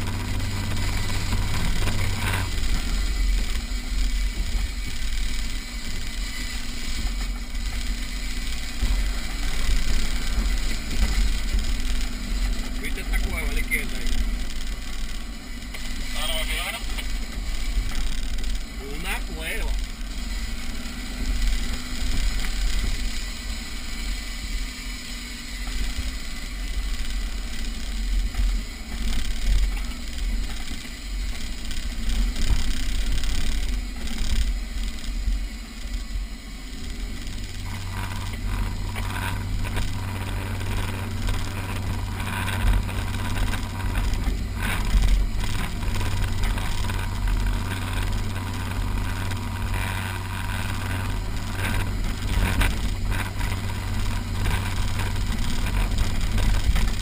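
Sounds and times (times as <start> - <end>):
off-road vehicle engine rumbling: 0.0 - 57.0
stronger engine hum: 0.0 - 57.0.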